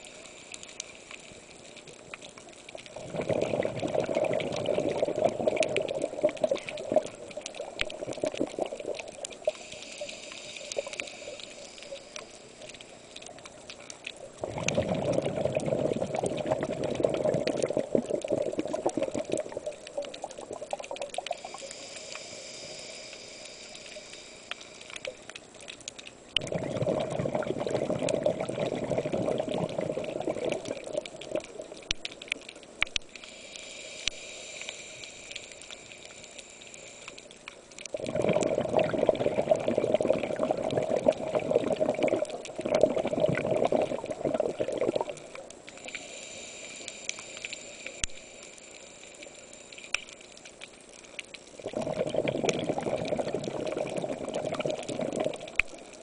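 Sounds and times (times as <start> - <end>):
exhaled bubbles gurgling underwater: 0.0 - 56.0
regulator inhalation hiss: 9.4 - 12.8, 21.2 - 25.2, 33.1 - 37.3, 45.8 - 50.3.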